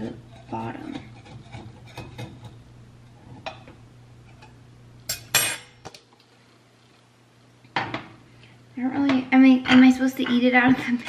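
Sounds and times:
knife scraping a metal pan: 0:00.0 - 0:02.5.

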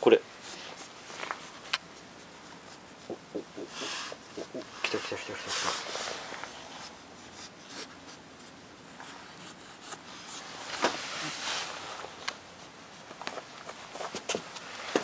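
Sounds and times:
cat fur rubbing on fabric: 0:04.8 - 0:07.9, 0:09.1 - 0:14.9.

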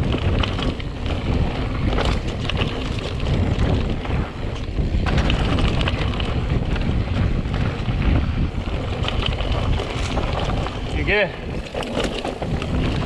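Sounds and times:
bike rattling and clattering: 0:00.0 - 0:13.0
bike tyres rumbling on dirt: 0:00.0 - 0:13.0
wind rushing over microphone: 0:00.0 - 0:13.0.

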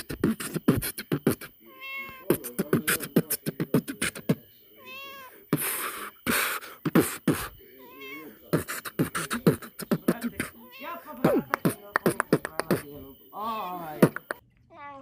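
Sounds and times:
beatboxing: 0:00.0 - 0:01.6, 0:02.3 - 0:04.4, 0:05.6 - 0:07.6, 0:08.5 - 0:10.6, 0:11.2 - 0:13.0, 0:13.9 - 0:14.4
cat meowing: 0:01.6 - 0:02.5, 0:04.8 - 0:05.5, 0:07.7 - 0:08.5, 0:10.4 - 0:11.6.

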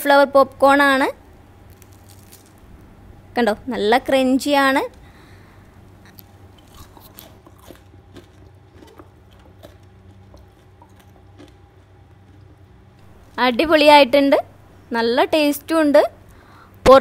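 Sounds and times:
steady low hum: 0:00.0 - 0:17.0
crunchy food chewing: 0:01.6 - 0:02.6, 0:05.8 - 0:13.4.

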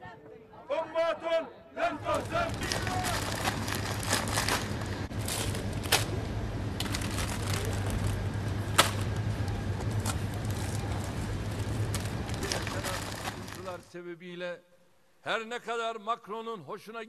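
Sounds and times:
shuffling and rustling: 0:02.1 - 0:06.2, 0:06.8 - 0:13.8.

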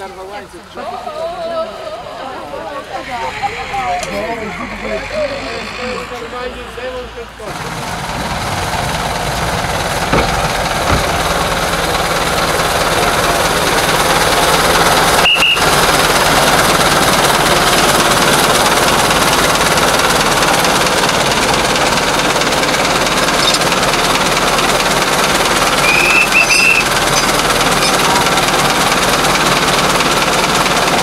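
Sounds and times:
diesel locomotive engine clattering: 0:00.0 - 0:31.0
short high squeal: 0:02.8 - 0:07.5, 0:25.7 - 0:28.2.

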